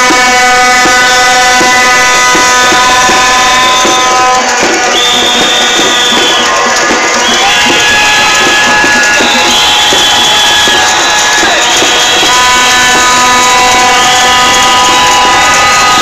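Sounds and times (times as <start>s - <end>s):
held horn note: 0.0s - 16.0s
long whistle blasts: 0.0s - 16.0s
steady drumming: 0.0s - 16.0s.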